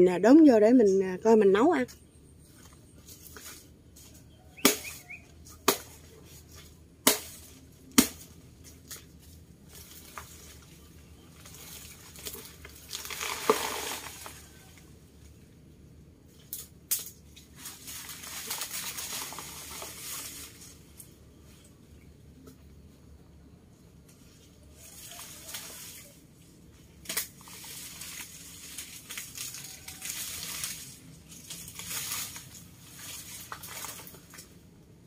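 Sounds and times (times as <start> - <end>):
blade chopping plant trunk: 7.0 - 8.3
leaves rustling and tearing: 7.3 - 14.9, 16.3 - 21.7, 24.2 - 34.6
plant falling: 11.4 - 14.7.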